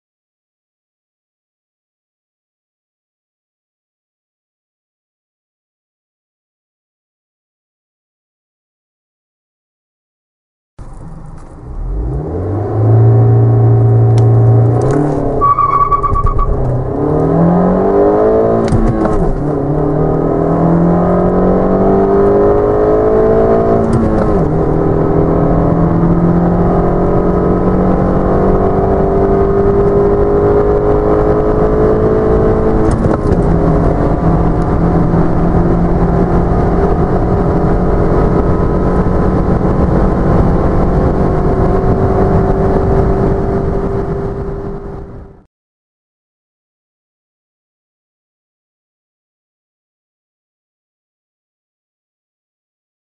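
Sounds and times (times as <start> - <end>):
car engine at full throttle: 10.8 - 45.4.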